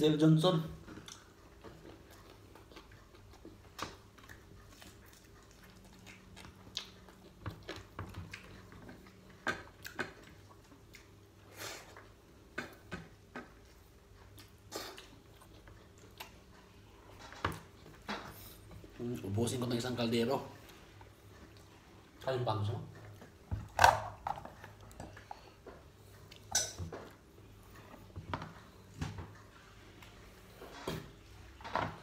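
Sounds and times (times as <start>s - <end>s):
man chewing and lip-smacking: 0.8s - 19.2s, 24.6s - 30.6s.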